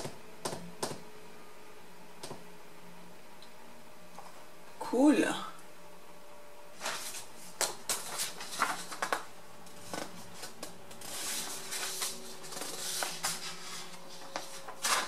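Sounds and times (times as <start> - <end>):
paper clicks and rustles: 6.8 - 15.0.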